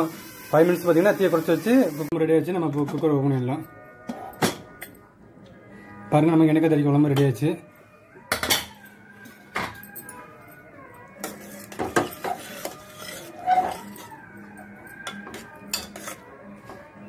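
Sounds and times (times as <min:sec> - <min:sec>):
spoon scraping a metal pot: 0:11.2 - 0:14.2, 0:15.0 - 0:16.3.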